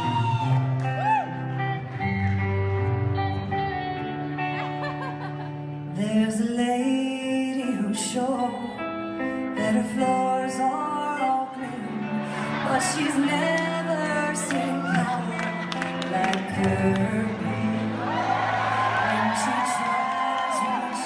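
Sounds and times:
song with singing: 5.9 - 21.0.

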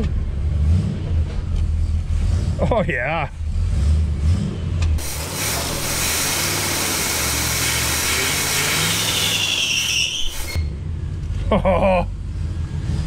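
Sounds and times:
car engine at hard throttle: 0.0 - 13.0
tire wheelspin hiss: 5.0 - 10.7
tire squeal: 5.5 - 10.8.

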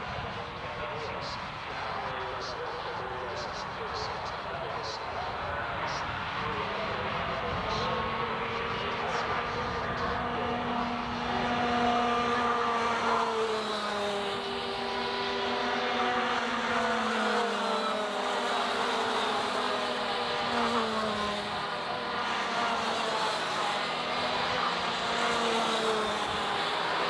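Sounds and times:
go-kart engines whining: 5.8 - 27.0.

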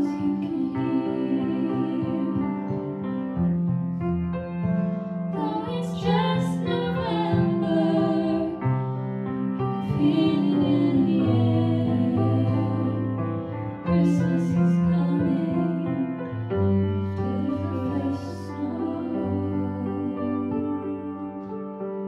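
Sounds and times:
grand piano: 0.0 - 22.0
woman singing: 5.4 - 8.6, 9.8 - 13.0, 13.9 - 16.2.

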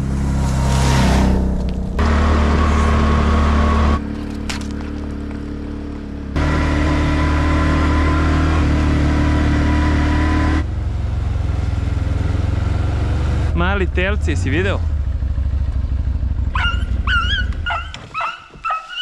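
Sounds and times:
atv engine rumbling: 0.0 - 19.0.

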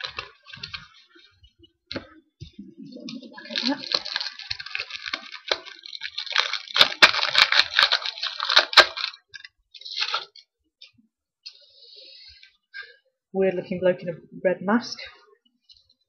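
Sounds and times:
plastic wrapper crinkling: 0.0 - 2.2, 2.9 - 10.5.

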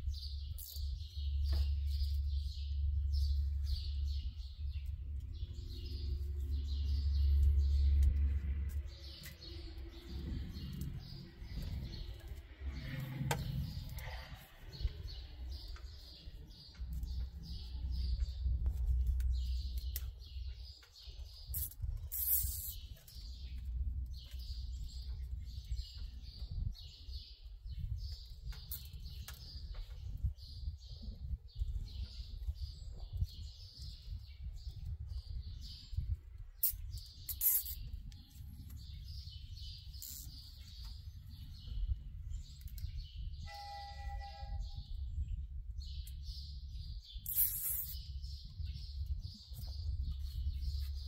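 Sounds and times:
birds chirping: 0.0 - 51.0
wind rumbling on microphone: 0.0 - 51.0.

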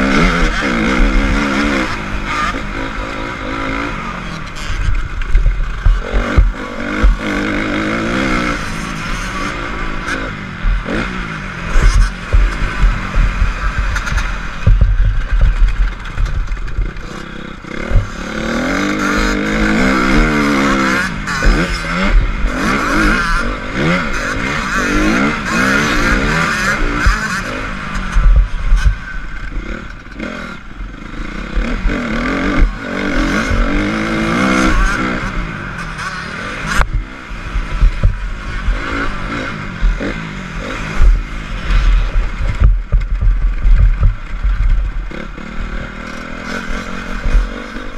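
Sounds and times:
dirt bike engine revving: 0.0 - 47.9
wind rumble on microphone: 10.6 - 17.2, 28.0 - 29.7, 36.8 - 45.4.

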